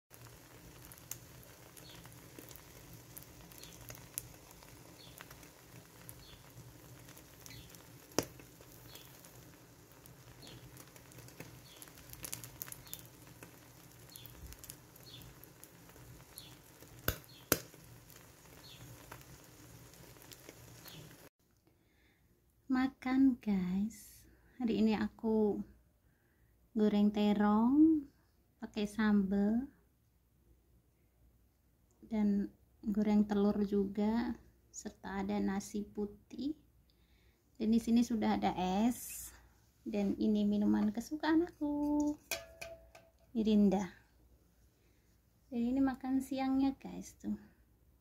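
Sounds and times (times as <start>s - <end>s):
omelette sizzling in oil: 0.1s - 21.3s, 37.8s - 43.9s
oil spitting pops: 42.0s - 43.3s.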